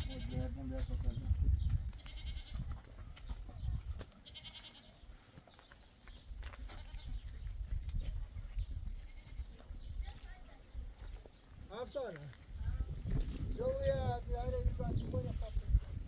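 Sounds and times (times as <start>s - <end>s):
goats bleating: 0.0s - 0.5s, 2.0s - 2.7s, 4.2s - 5.0s, 6.6s - 7.2s, 9.0s - 9.6s.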